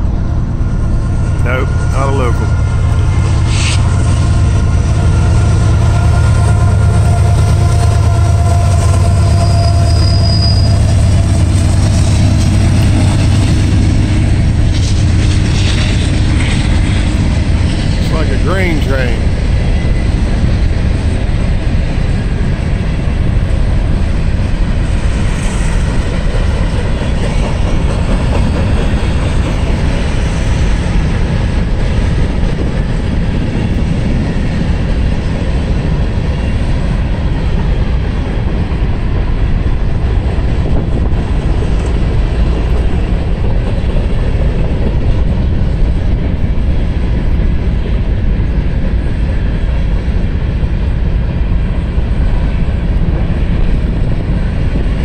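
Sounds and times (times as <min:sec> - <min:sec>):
freight train wheels on rails: 0:00.0 - 0:55.0.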